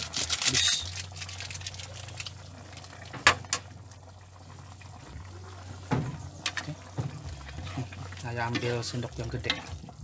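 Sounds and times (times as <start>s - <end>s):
soup bubbling in a pan: 0.0s - 10.0s.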